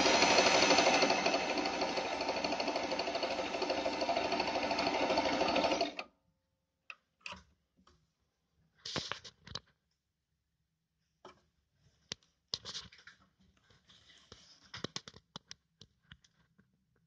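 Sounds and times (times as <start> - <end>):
sewing machine stitching: 0.0 - 6.0.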